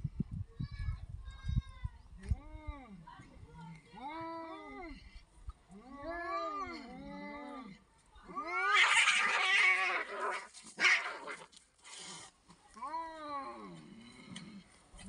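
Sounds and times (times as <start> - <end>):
cats caterwauling: 8.4 - 11.5.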